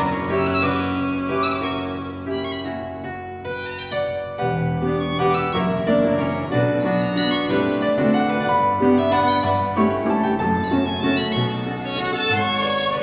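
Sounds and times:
bowed violin melody: 0.0s - 13.0s
piano: 0.0s - 13.0s.

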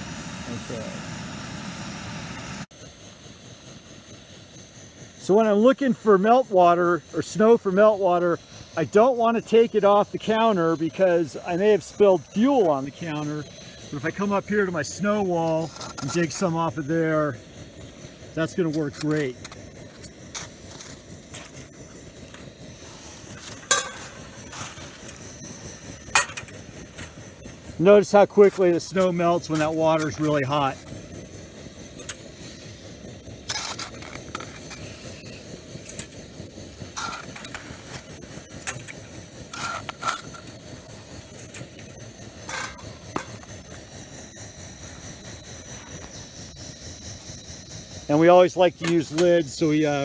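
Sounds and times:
camp stove hissing: 0.0s - 50.0s
metal clinking on pot: 23.7s - 24.1s.

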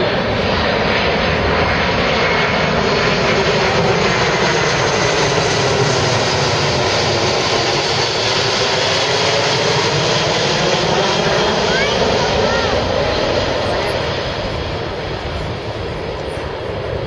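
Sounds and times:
jet aircraft roaring overhead: 0.0s - 17.0s.

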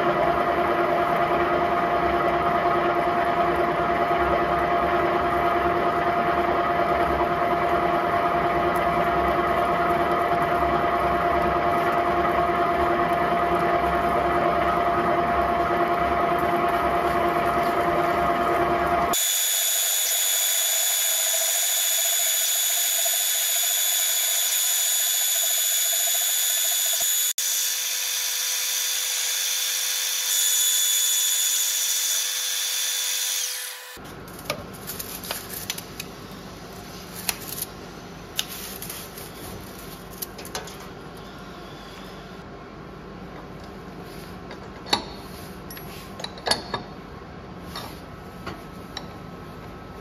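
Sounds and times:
milling machine running: 0.0s - 34.0s
milling drill cutting steel whine: 19.1s - 34.0s.

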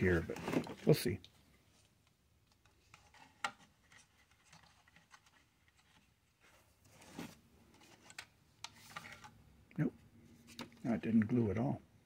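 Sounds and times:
plastic parts rubbing and clicking: 0.0s - 9.4s.

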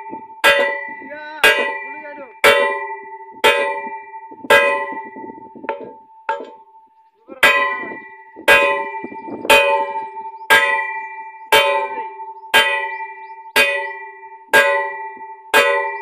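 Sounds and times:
hammer striking metal pipe: 0.4s - 6.7s.

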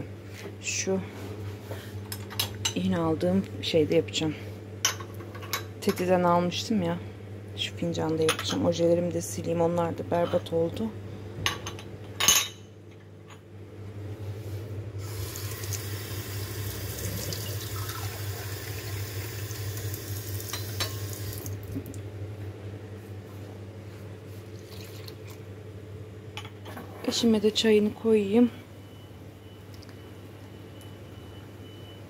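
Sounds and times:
water pouring into pot: 15.1s - 21.6s.

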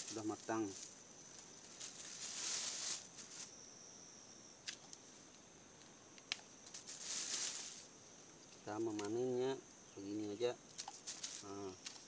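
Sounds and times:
faint rustles: 0.0s - 3.7s, 6.6s - 9.3s, 10.0s - 12.0s
high thin insect drone: 0.0s - 12.0s.

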